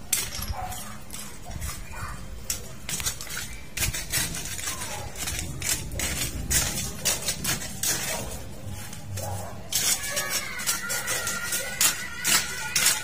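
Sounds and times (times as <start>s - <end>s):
rustling and scraping: 0.0s - 13.0s.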